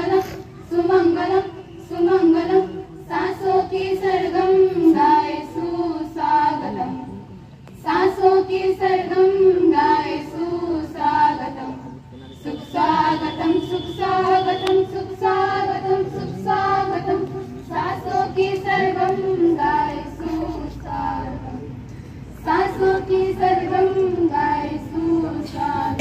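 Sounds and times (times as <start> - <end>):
young women singing together: 0.0 - 26.0.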